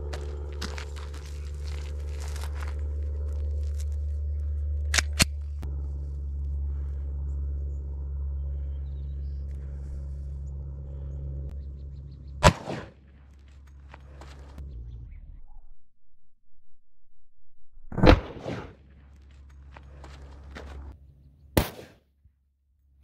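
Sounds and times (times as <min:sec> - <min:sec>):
steady low rumble: 0:00.0 - 0:21.8
pistol shot: 0:12.4 - 0:13.0, 0:21.6 - 0:22.0.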